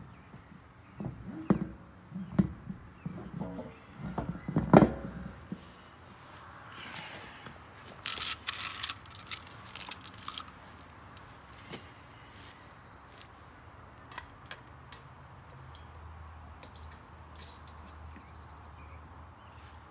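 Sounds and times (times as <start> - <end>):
metal lug nuts clinking: 8.0 - 10.6, 14.0 - 15.9.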